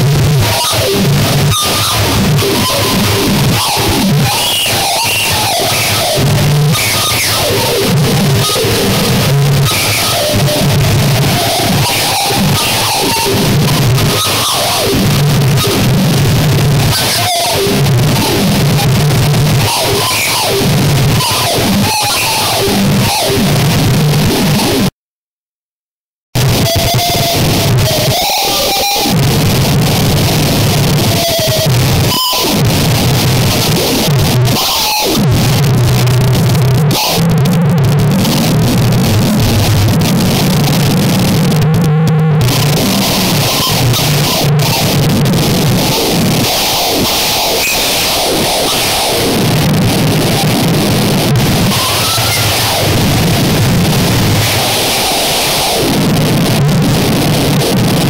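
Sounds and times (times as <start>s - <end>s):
harsh distorted noise: 0.0s - 25.0s, 26.4s - 58.0s.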